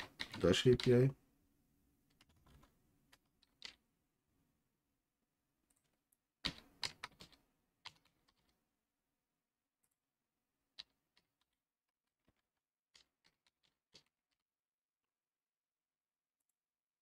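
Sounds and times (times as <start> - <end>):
computer keyboard typing: 0.0 - 1.1, 2.1 - 3.8, 5.7 - 8.5.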